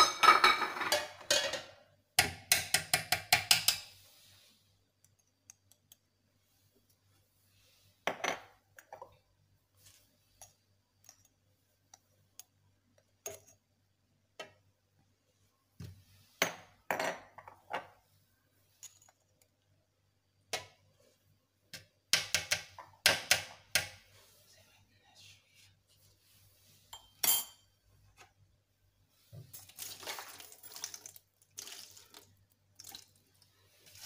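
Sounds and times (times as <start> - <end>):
metal spoon clinking on pot: 27.0 - 27.7.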